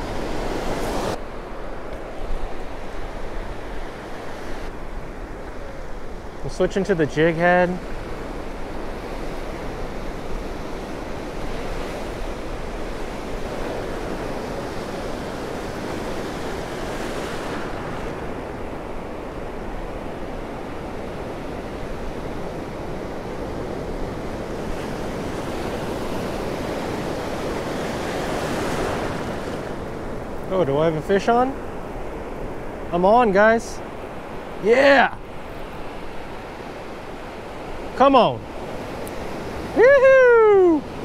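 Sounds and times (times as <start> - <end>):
ocean surf washing: 0.0 - 41.0.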